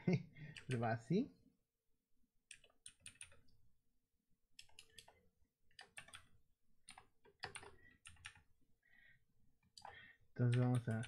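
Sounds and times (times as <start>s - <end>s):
computer keyboard typing: 0.5s - 0.9s, 2.5s - 3.4s, 4.6s - 8.5s, 9.7s - 11.0s.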